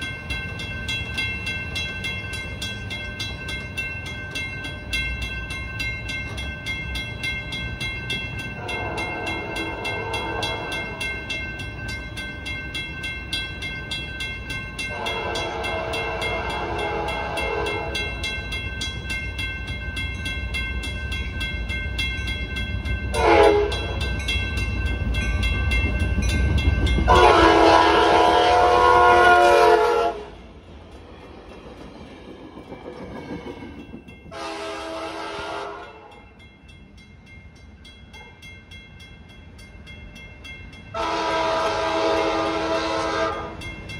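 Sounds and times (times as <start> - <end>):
crossing bell ringing: 0.0 - 30.8, 32.8 - 43.9
train rumble: 0.0 - 43.9
train horn blasts: 8.6 - 10.9, 14.9 - 18.2, 23.1 - 24.0, 27.0 - 30.4, 34.3 - 36.2, 41.0 - 43.6.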